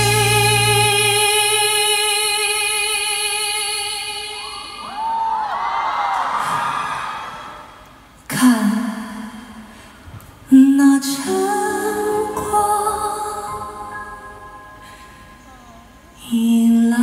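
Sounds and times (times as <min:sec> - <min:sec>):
band playing sustained chords: 0:00.0 - 0:01.7.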